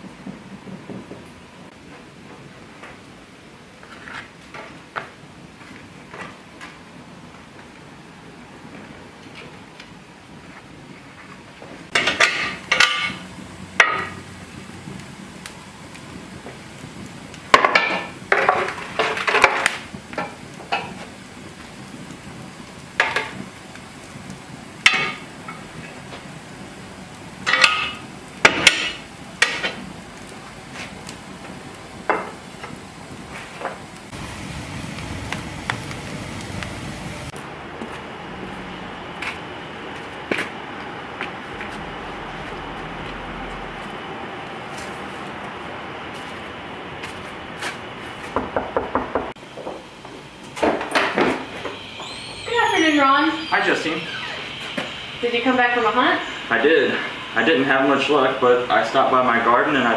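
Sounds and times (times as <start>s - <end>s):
outdoor background hum: 0.0s - 59.9s
oven door and pan clanking: 11.9s - 14.2s, 27.4s - 29.8s.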